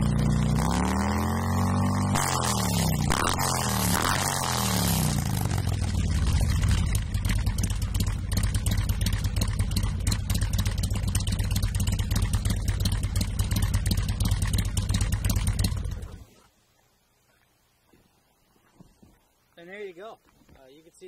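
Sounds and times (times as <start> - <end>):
motorcycle engine idling: 0.0 - 0.7, 2.8 - 16.3.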